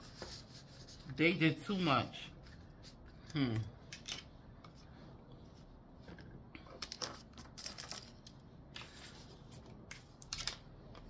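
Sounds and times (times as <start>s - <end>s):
paper cards rustling: 6.8s - 11.0s.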